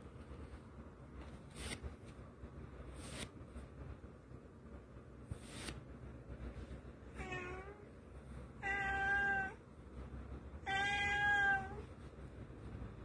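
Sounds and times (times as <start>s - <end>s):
cat meowing: 7.2s - 7.8s, 8.6s - 9.6s, 10.6s - 11.9s.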